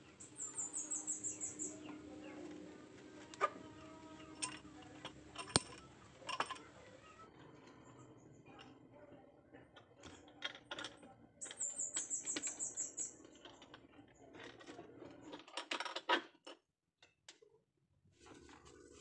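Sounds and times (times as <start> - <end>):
metal hand tool clicking on wood: 5.4 - 5.8.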